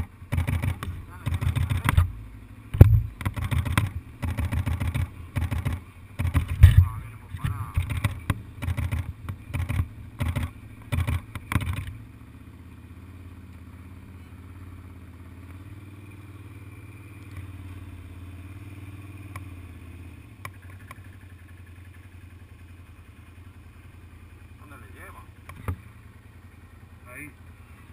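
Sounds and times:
loud knocks and rattles: 0.0s - 2.1s, 2.8s - 11.9s
quad bike engine running: 0.0s - 27.9s.

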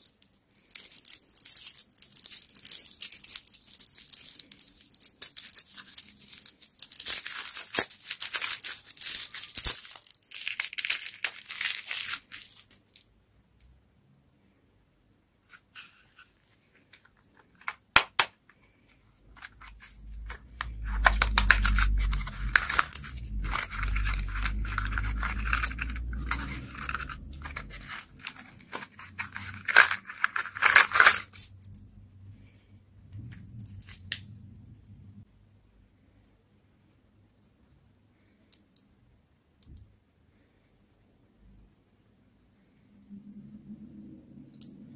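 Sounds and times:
cardboard box and wrapper rustling: 0.0s - 13.0s, 19.2s - 31.4s.

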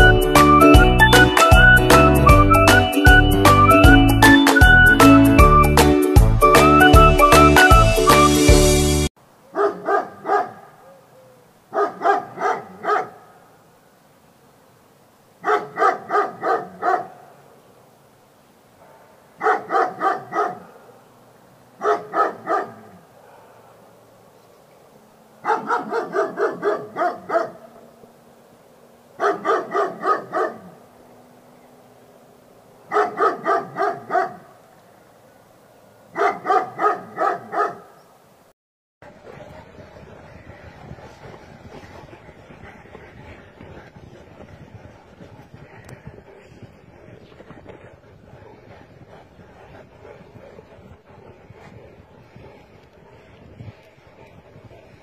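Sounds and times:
dog barking: 9.5s - 11.0s, 11.7s - 13.4s, 15.4s - 17.4s, 18.8s - 21.0s, 21.8s - 24.0s, 25.4s - 27.9s, 29.2s - 30.8s, 32.9s - 34.6s, 36.1s - 38.0s.

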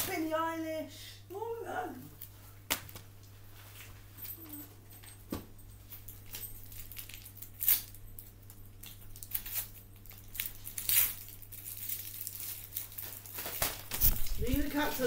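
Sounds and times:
steady low hum: 0.0s - 15.0s
packaging crinkling: 6.2s - 15.0s.

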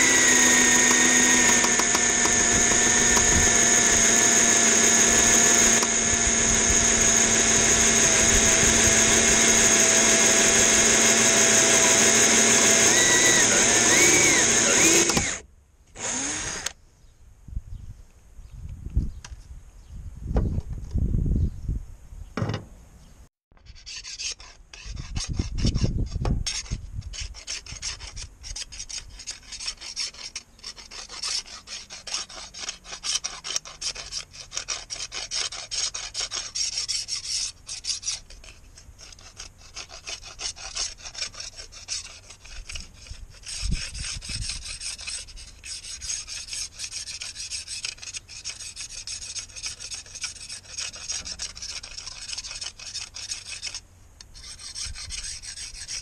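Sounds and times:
knife scraping metal strip: 23.6s - 56.0s.

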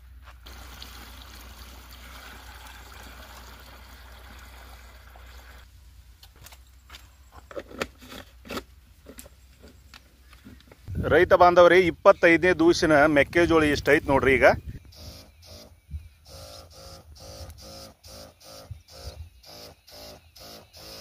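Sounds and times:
water pouring into a tank: 0.4s - 5.7s.

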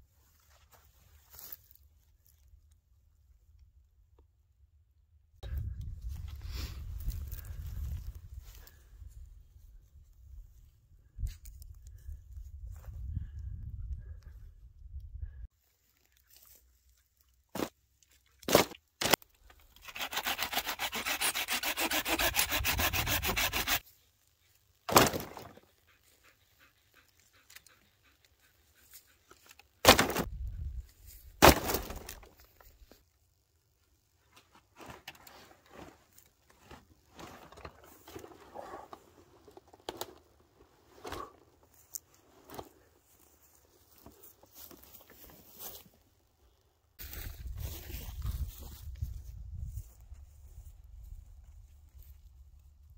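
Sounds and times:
rustling through dry grass: 0.0s - 2.7s, 5.7s - 13.3s, 15.5s - 17.8s, 41.6s - 52.9s
wood rasping against wood: 19.8s - 23.8s
dry branches snapping: 29.8s - 30.3s, 31.4s - 32.5s.

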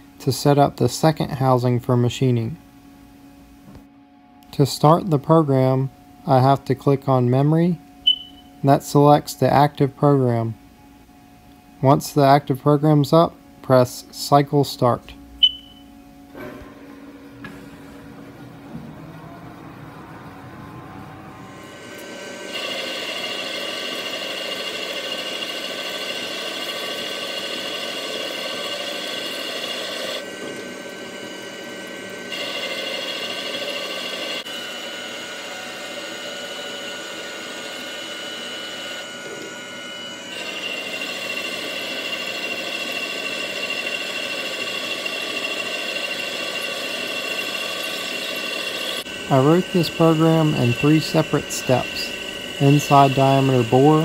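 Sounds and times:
lathe machine whine: 15.4s - 54.0s.

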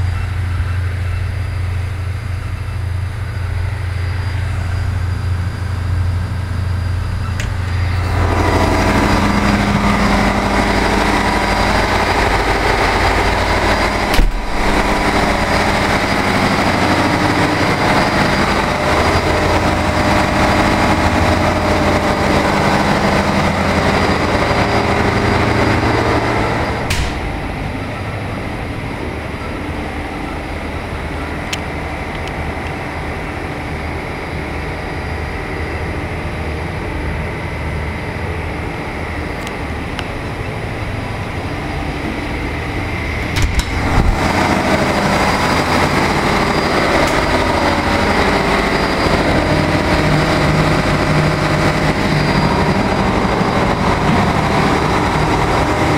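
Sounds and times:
diesel engine room drone: 0.0s - 55.9s
door shutting with a click: 7.3s - 7.8s, 14.1s - 15.6s, 26.8s - 27.4s, 43.2s - 44.2s
door latch clicking: 14.1s - 14.8s.

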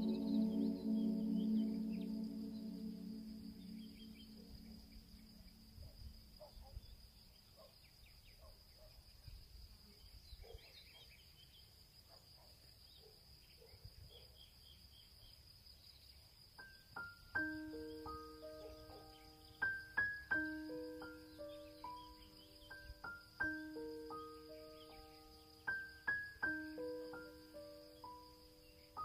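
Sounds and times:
sustained music tones: 0.0s - 5.8s
high-pitched insect drone: 0.0s - 6.2s
faint chirps: 0.0s - 29.0s.

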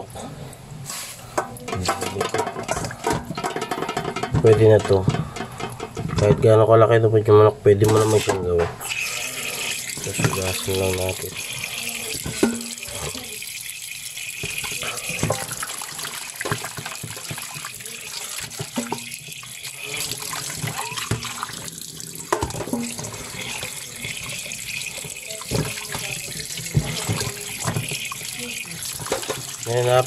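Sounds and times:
tap water running into metal bowl: 1.3s - 6.5s, 7.8s - 30.0s
water splashing: 8.0s - 30.0s.

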